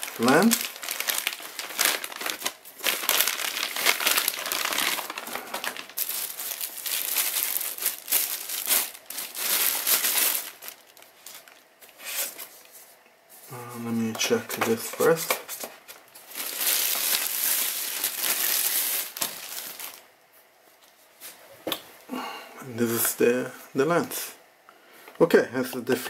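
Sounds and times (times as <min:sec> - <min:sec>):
plastic bags crinkling: 0:00.0 - 0:12.5, 0:14.0 - 0:20.1.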